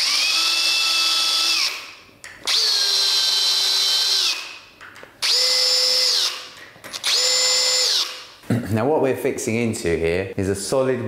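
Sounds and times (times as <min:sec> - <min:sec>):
cordless drill driving screws: 0:00.0 - 0:01.9, 0:02.5 - 0:04.5, 0:05.2 - 0:08.2.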